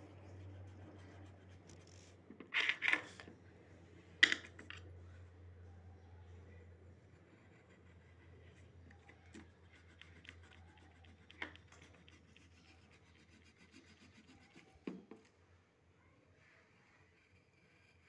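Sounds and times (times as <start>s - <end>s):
pencil scratching on paper: 0.0s - 2.2s, 6.8s - 15.0s, 16.7s - 18.0s.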